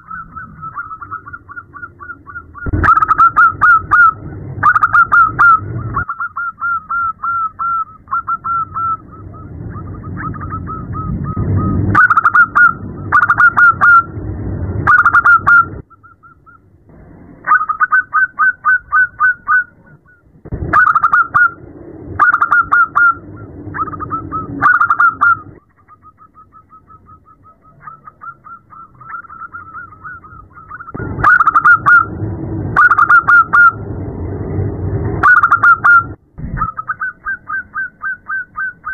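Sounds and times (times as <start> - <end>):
dove cooing: 0.0 - 14.1, 14.8 - 16.7, 17.4 - 32.2, 32.8 - 33.8, 35.2 - 38.9
low background rumble: 0.0 - 38.9.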